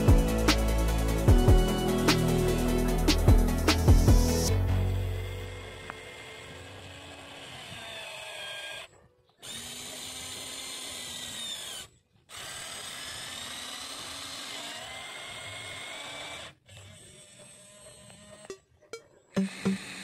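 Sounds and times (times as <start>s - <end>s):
toy excavator electric motors whining: 4.4s - 20.0s.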